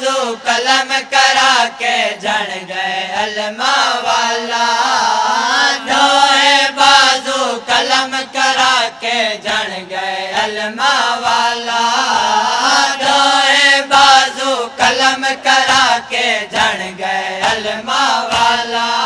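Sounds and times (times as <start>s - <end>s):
men chanting in unison: 0.0s - 19.0s
rhythmic chest-beating strikes: 5.9s - 19.0s.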